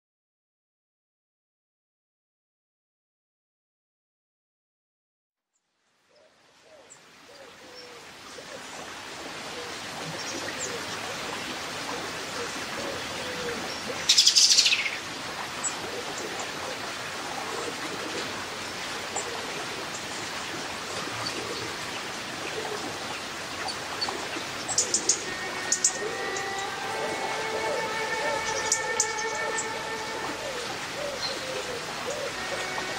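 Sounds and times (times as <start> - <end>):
river water rushing: 6.5 - 32.9
birds chirping and singing: 23.6 - 32.9
downward sweeping bird phrase: 25.0 - 32.9.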